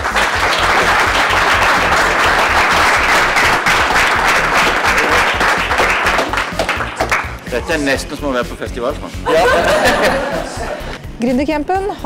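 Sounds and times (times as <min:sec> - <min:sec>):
crowd applauding: 0:00.0 - 0:07.8.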